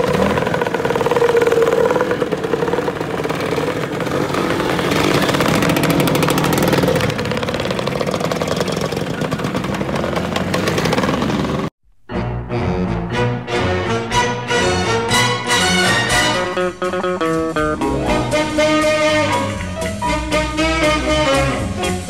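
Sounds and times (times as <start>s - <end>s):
scooter engines revving past: 0.0s - 11.7s.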